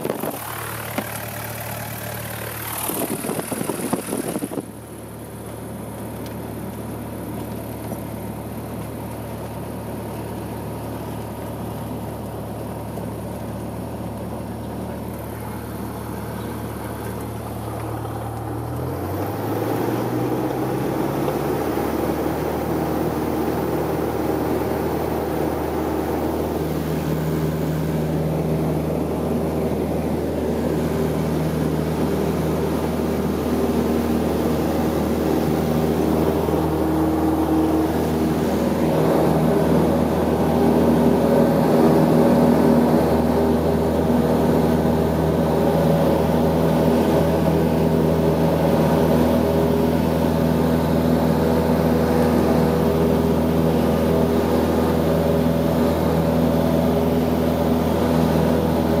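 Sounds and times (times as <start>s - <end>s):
propeller plane engine droning: 0.0s - 59.0s.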